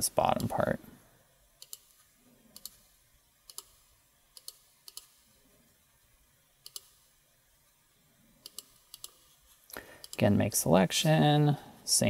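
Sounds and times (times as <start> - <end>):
computer mouse clicking: 1.6 - 5.3, 6.6 - 7.1, 8.4 - 10.2.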